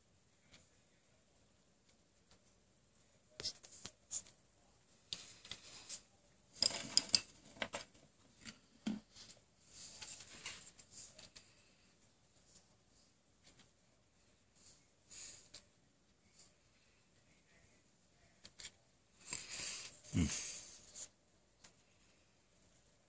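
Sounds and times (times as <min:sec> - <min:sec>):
paper rustling: 0:09.1 - 0:11.7.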